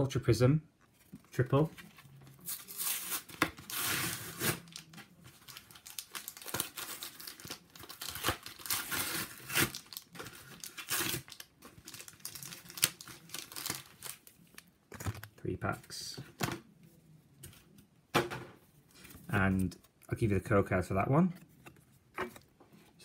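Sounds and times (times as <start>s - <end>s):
packaging tearing: 2.4s - 15.3s
plastic packaging crinkling: 2.4s - 15.4s.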